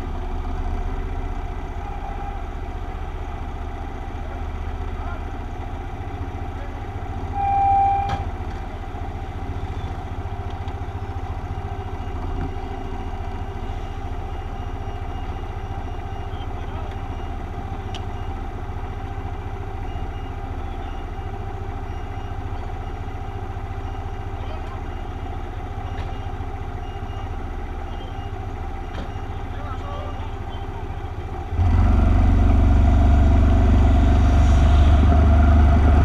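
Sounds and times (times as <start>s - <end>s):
short high-pitched tone: 7.4s - 8.2s
motorcycle engine idling: 8.3s - 31.5s.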